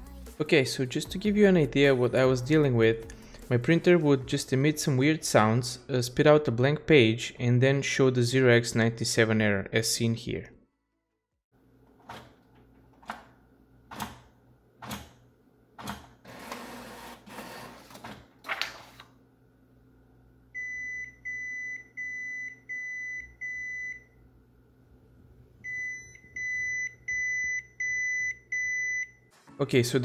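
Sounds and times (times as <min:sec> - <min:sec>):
printer beeping: 0:16.3 - 0:18.0
printer whirring: 0:16.3 - 0:19.1.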